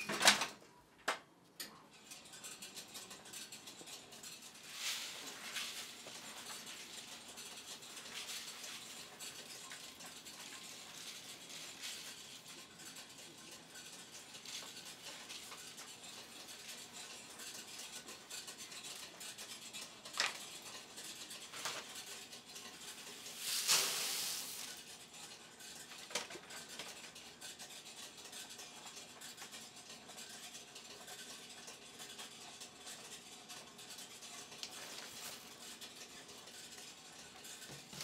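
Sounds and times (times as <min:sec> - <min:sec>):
puffed grain crackling rustle: 0:04.5 - 0:12.6, 0:23.0 - 0:24.8
loud hiss: 0:23.5 - 0:24.6.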